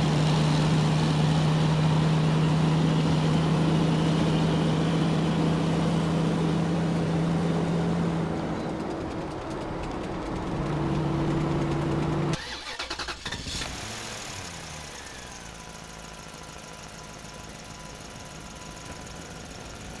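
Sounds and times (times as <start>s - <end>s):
engine starting and idling: 8.8s - 15.4s.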